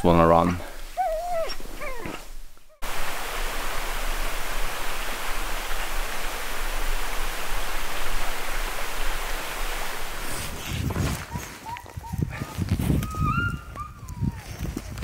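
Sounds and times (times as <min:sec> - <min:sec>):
river water rushing: 0:02.8 - 0:10.6.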